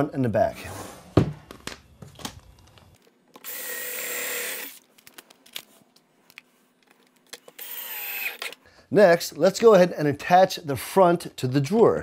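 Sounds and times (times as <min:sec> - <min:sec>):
drill driving screw into wood: 0:03.4 - 0:04.8, 0:07.4 - 0:08.6.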